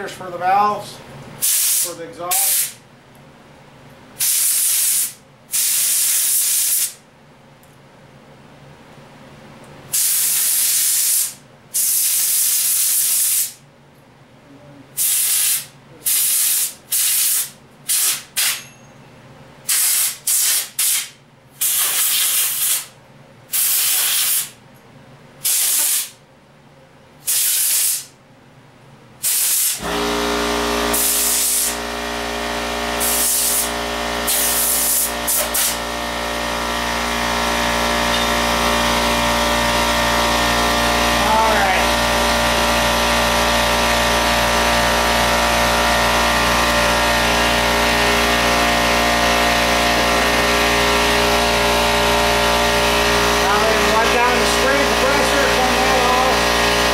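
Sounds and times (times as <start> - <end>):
pressurized spray bursts hissing: 1.4 - 2.8, 4.2 - 7.0, 9.9 - 13.6, 15.0 - 18.6, 19.7 - 22.9, 23.5 - 24.5, 25.4 - 26.2, 27.3 - 28.1, 29.2 - 29.8, 33.0 - 33.7, 34.3 - 35.8
steady motor hum: 29.8 - 56.9.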